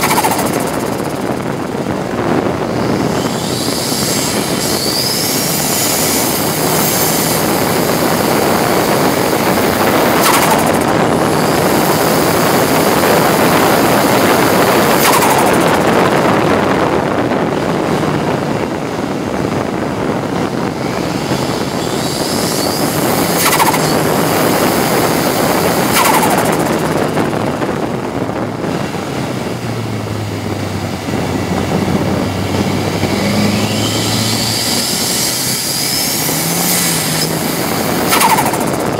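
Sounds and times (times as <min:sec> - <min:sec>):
race car engine running hard: 0:00.0 - 0:38.9
road and wind noise: 0:00.0 - 0:38.9
short sharp cracks: 0:15.0 - 0:15.8, 0:23.4 - 0:24.0, 0:25.9 - 0:27.0.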